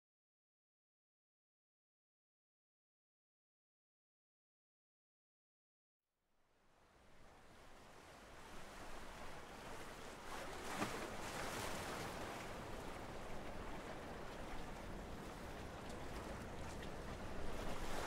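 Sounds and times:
ocean waves washing: 7.4 - 18.0.

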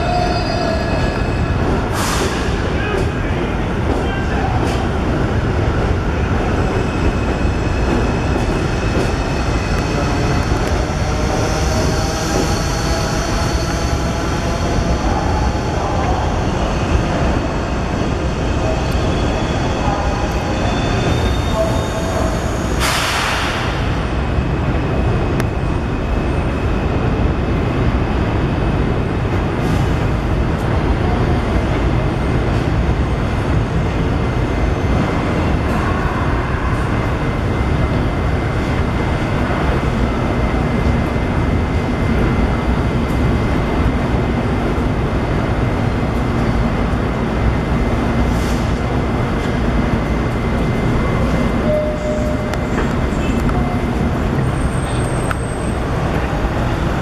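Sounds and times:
subway train rumbling: 0.0 - 57.0
air hiss: 1.9 - 2.5.

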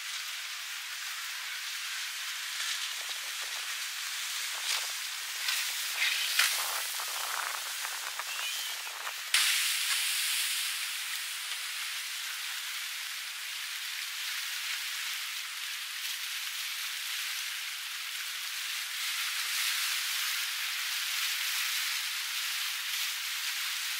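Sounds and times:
rain hissing: 0.0 - 23.9.

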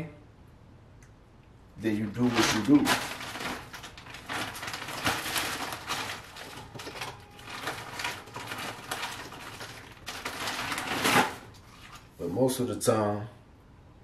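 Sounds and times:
plastic bag crinkling: 2.0 - 12.2
frozen fruit clattering into blender: 2.1 - 12.1.

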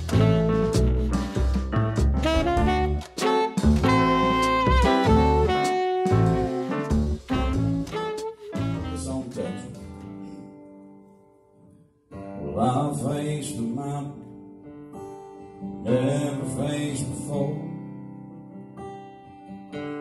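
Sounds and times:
acoustic guitar strummed chords: 0.0 - 11.0, 12.1 - 20.0
man singing: 8.8 - 9.9, 12.4 - 14.3, 15.8 - 17.9.

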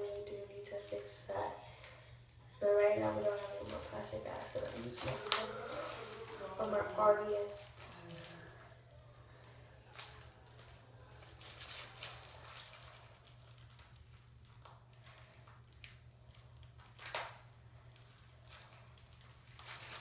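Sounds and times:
plastic bag crinkling: 1.9 - 20.0.

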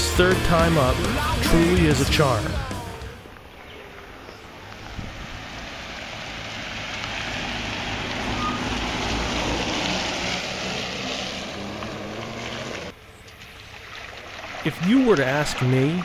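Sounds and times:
vehicle driving past on wet road: 3.9 - 14.6.

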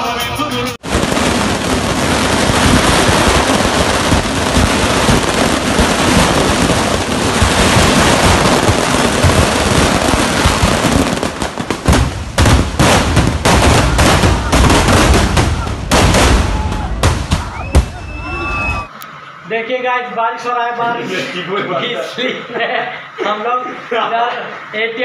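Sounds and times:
fireworks crackling: 0.0 - 19.0
loud firework bangs: 0.8 - 18.9.

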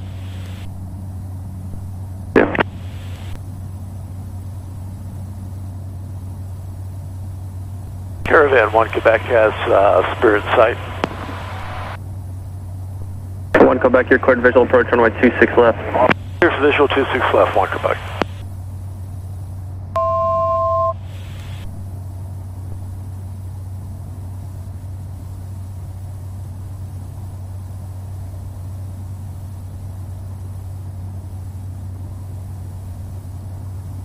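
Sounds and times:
turboprop engine drone: 0.0 - 34.0
two-tone cockpit alert: 2.4 - 2.8, 20.0 - 21.0.

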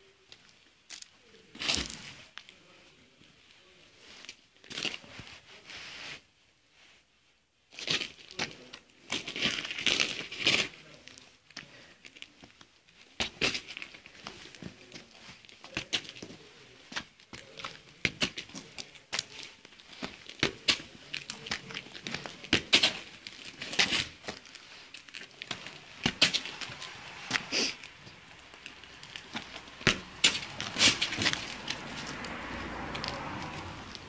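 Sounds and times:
dog's claws on concrete: 15.7 - 34.0.

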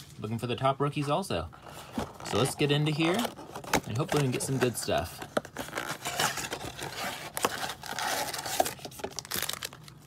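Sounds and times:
wrapped packs crinkling: 1.8 - 10.0
cardboard box being torn open: 2.1 - 9.7.

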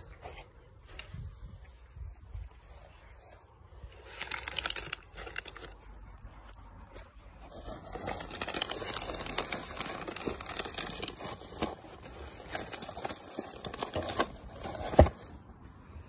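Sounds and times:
plastic and paper crinkling: 3.8 - 15.5.

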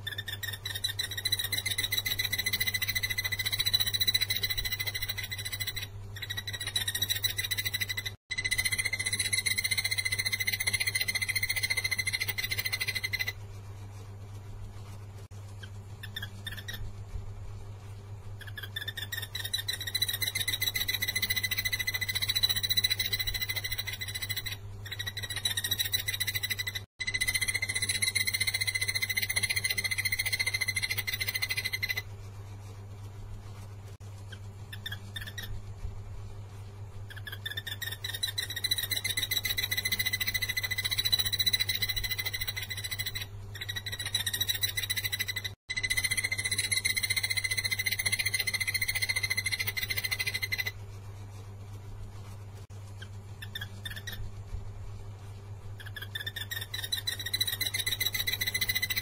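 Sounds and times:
bird high-pitched trill: 0.0 - 13.4, 15.6 - 16.9, 18.4 - 32.0, 34.7 - 35.5, 37.1 - 50.8, 53.4 - 54.2, 55.8 - 59.0
steady low hum: 0.0 - 59.0.

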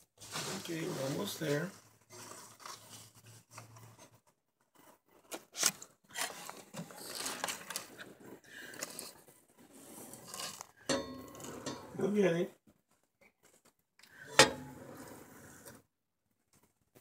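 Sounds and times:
hands scraping and rustling materials: 0.1 - 10.8.

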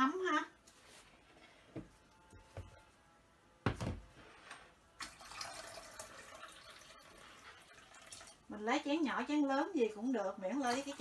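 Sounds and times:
water pouring: 5.0 - 8.5.

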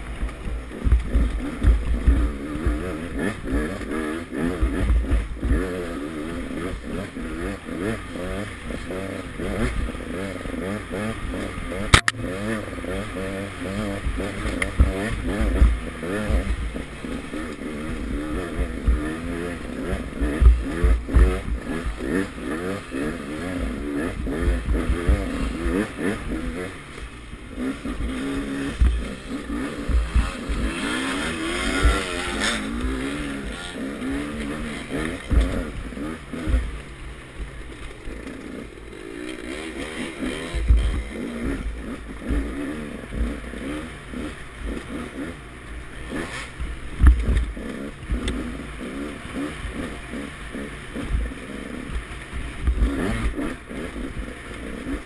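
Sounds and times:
dirt bike engine revving: 0.0 - 55.0
low thumps on microphone: 29.8 - 30.7.

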